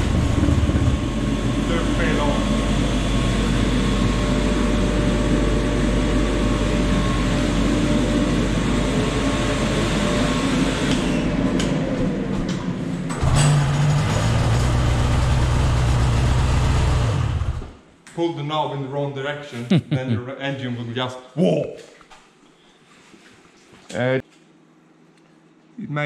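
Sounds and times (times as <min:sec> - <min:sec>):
two-stroke engine idling: 0:00.0 - 0:03.8
rushing fan noise: 0:00.0 - 0:17.9.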